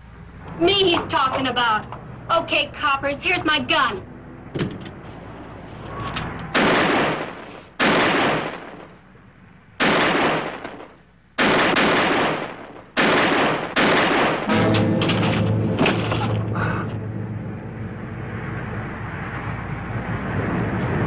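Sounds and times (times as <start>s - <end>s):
echoing gunshots: 6.5s - 9.0s, 9.8s - 16.4s.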